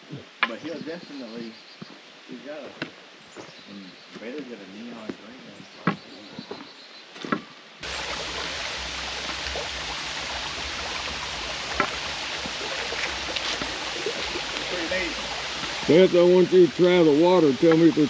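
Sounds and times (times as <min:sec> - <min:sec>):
creek water rushing over rocks: 0:07.8 - 0:18.0.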